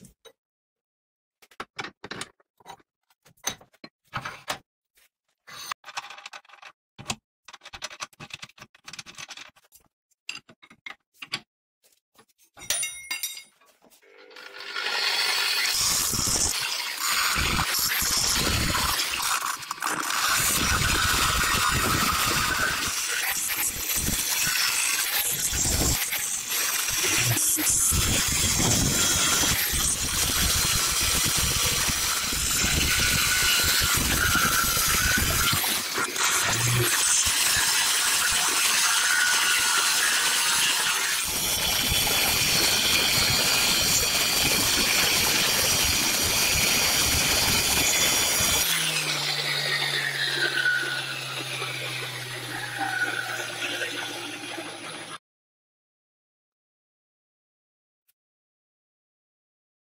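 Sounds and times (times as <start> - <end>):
metal clicks and clinks: 12.6 - 13.6
angle grinder grinding metal: 14.0 - 55.2.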